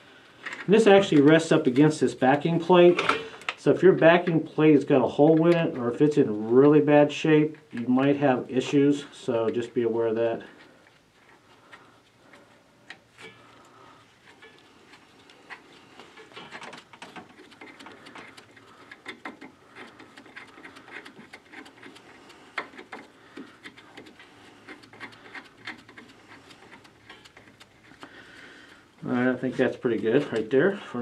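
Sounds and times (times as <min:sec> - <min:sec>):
gloved fingers rubbing metal: 0:14.1 - 0:28.2.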